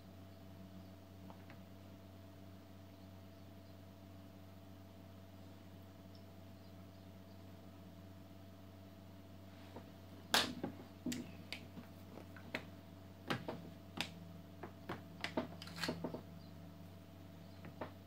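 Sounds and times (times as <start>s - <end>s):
steady low hum: 0.0s - 18.0s
makeup brushes and palettes clicking: 13.3s - 16.2s.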